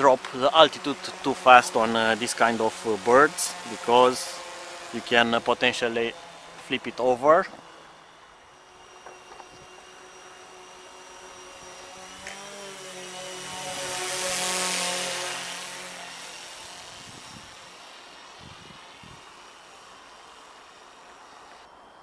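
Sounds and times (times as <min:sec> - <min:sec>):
drone propellers buzzing: 0:00.0 - 0:22.0.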